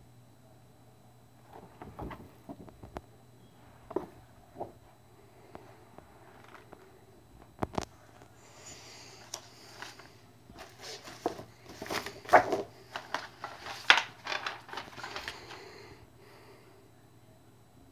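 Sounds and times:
glossy paper rustling: 9.0 - 15.8.

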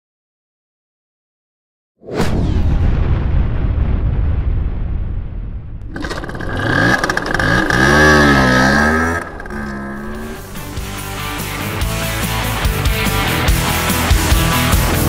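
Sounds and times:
scooter engine revving: 5.9 - 11.0.

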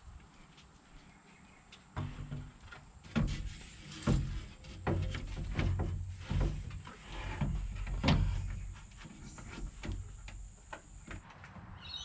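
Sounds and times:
radiator parts clunking: 2.0 - 11.5.

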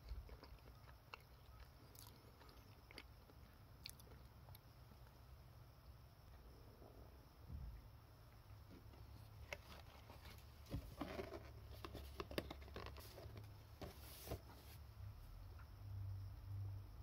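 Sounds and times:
cardboard box being closed: 9.5 - 14.7.

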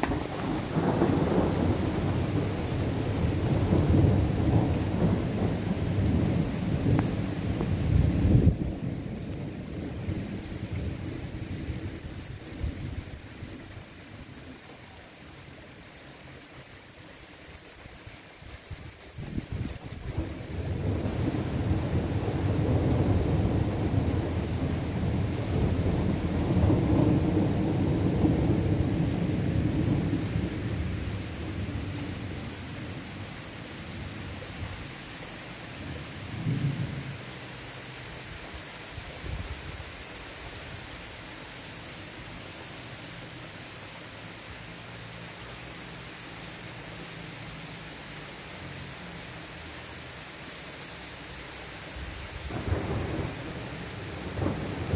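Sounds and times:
thunder rumbling: 0.0 - 13.2, 19.6 - 33.3, 52.4 - 54.9
steady rain: 0.0 - 54.9.

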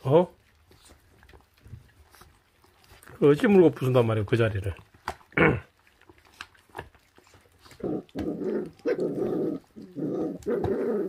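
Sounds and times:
puppies growling: 0.0 - 11.0
teeth clicking on bone: 4.7 - 11.0.

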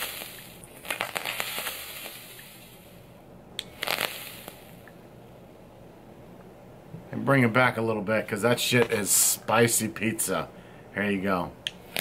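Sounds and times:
vape coil crackling and sizzling: 0.0 - 4.9.

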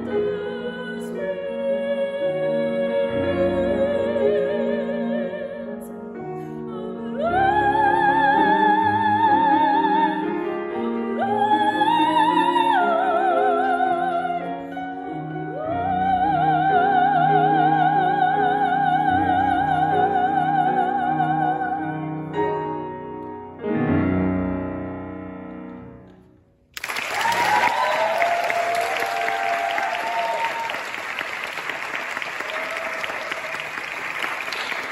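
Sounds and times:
woman singing operatic style: 0.0 - 22.3
grand piano: 0.0 - 34.9
applause: 26.8 - 34.9.

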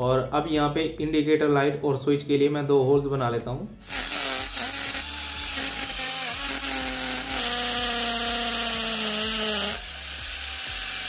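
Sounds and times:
electric drill boring plastic: 3.8 - 11.0.

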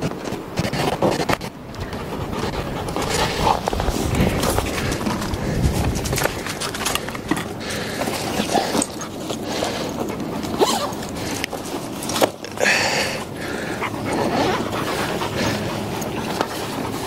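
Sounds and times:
rough rustling noise: 0.0 - 17.0
dog sounds: 8.3 - 11.6, 13.5 - 17.0.

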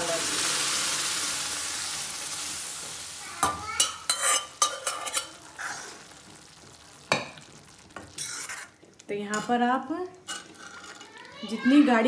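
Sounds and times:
food sizzling in a pan: 0.0 - 12.0
spoon clinking against pan: 3.4 - 5.4
spoon stirring: 3.8 - 6.0, 8.0 - 11.8.

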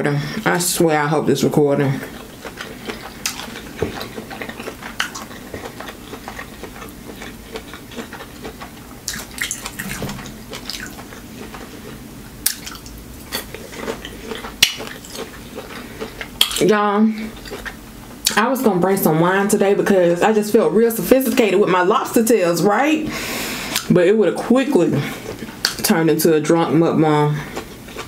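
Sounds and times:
chewing and wet mouth sounds: 1.8 - 18.4, 27.4 - 28.0.

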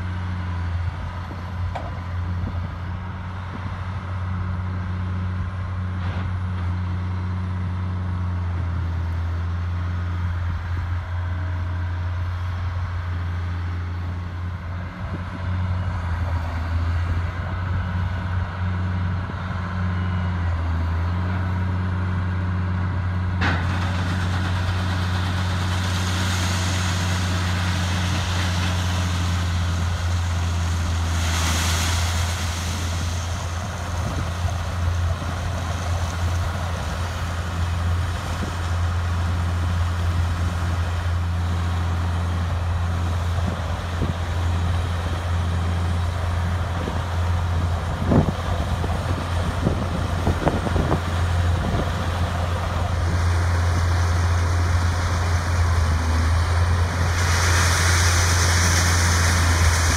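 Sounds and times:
machinery engine droning: 0.0 - 59.9
rushing hiss: 24.0 - 47.6, 51.0 - 59.9.

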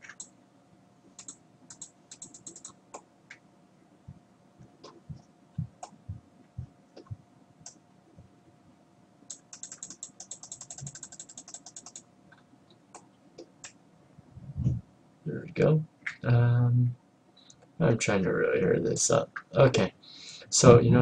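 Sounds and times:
computer mouse clicks: 0.0 - 0.3, 1.2 - 3.4, 9.3 - 13.8.

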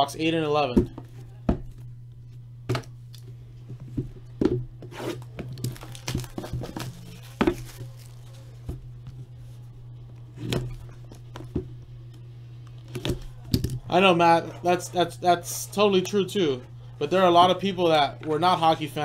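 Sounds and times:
steady low hum: 0.0 - 19.0
plastic wrap tearing and crinkling: 5.0 - 8.6.

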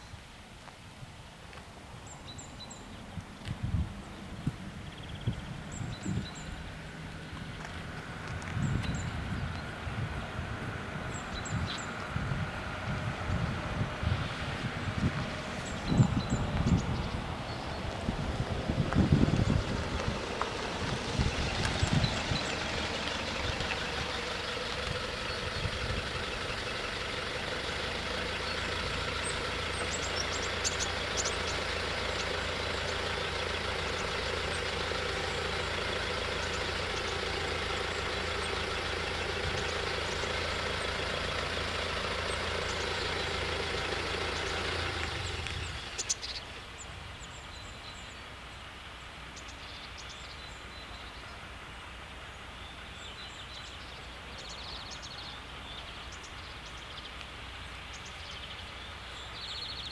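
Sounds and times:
engine idling: 4.7 - 48.2.

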